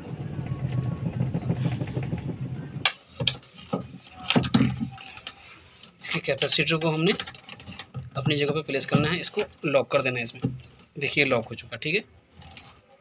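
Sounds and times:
clicks and knocks from handling parts: 2.8s - 9.6s.

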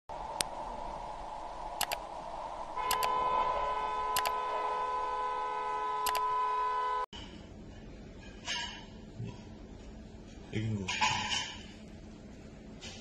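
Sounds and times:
traffic noise: 0.1s - 7.1s
sharp double clicks: 1.8s - 2.0s, 2.8s - 3.2s, 4.2s - 4.4s, 6.0s - 6.2s
car horn long blast: 2.8s - 7.1s.

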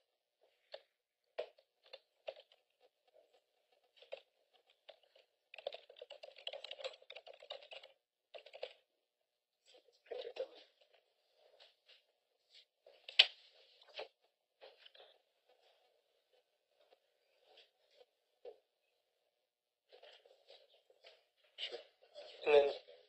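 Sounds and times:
computer keyboard typing: 3.8s - 8.9s.

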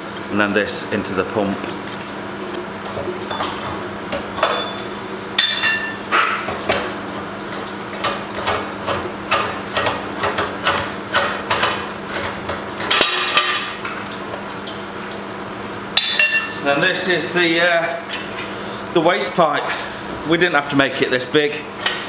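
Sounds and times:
metal pipes clinking and knocking: 3.3s - 6.9s, 16.0s - 16.6s.

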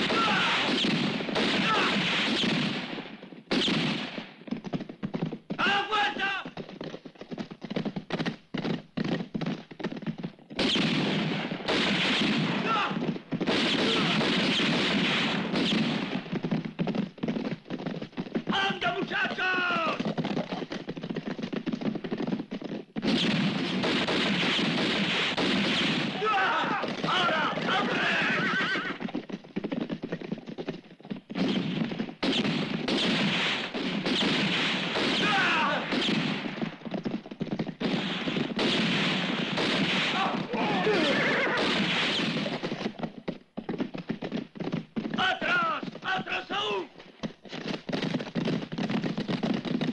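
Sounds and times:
rapid gunfire: 0.0s - 4.3s, 10.6s - 20.5s, 23.0s - 29.0s, 31.3s - 43.0s
hoofbeats on dry ground: 0.0s - 49.9s
horses galloping: 0.0s - 49.9s
men shouting: 18.6s - 20.0s, 26.2s - 28.4s, 35.2s - 35.8s, 40.2s - 41.3s.

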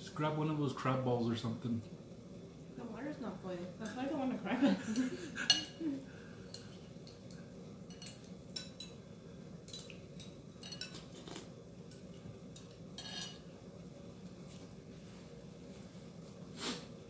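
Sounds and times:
chopsticks and spoon clinking bowls: 4.9s - 5.8s, 6.5s - 9.0s, 9.7s - 13.5s.

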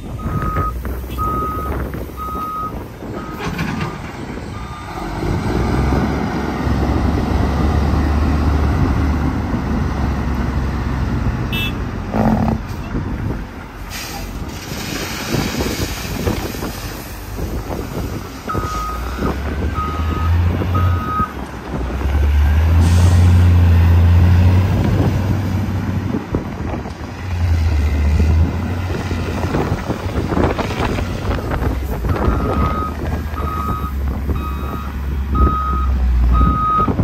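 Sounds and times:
diesel engine rumble: 0.0s - 37.0s
back-up alarm beeps: 32.2s - 36.9s.

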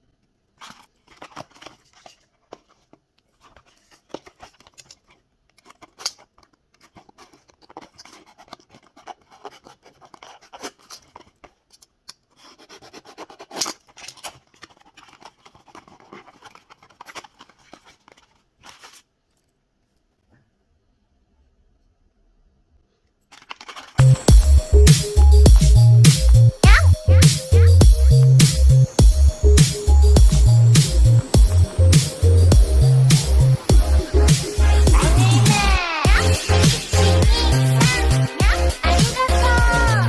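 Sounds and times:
packaging rustling: 0.0s - 19.6s, 23.2s - 24.3s
cardboard rubbing and scraping: 0.6s - 11.6s, 12.3s - 19.1s.

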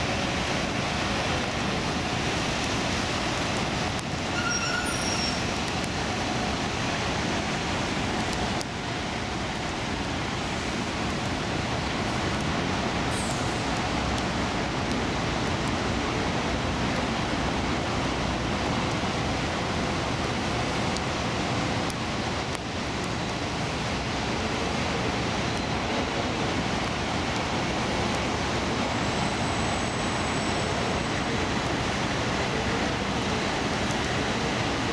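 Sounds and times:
heavy rain hissing: 0.0s - 34.9s
highway traffic noise: 0.0s - 34.9s.

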